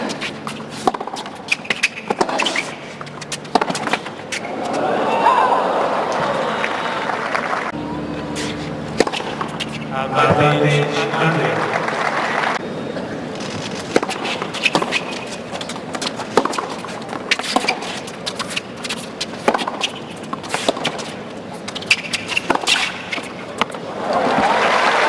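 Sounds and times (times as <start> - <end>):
ball bouncing: 0.0 - 4.4, 8.9 - 10.4, 13.9 - 21.1
shoes squeaking on court: 0.0 - 4.9, 8.2 - 10.4, 12.9 - 23.9
racquet hitting ball: 0.8 - 4.2, 8.4 - 10.5, 19.4 - 21.1, 21.9 - 23.8
crowd applause: 4.5 - 7.8, 11.0 - 12.6, 23.9 - 25.0.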